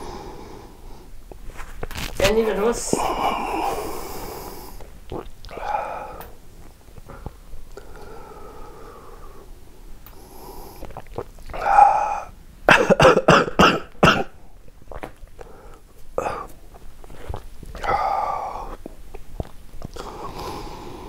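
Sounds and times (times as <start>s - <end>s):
man coughing hard: 12.7s - 14.4s.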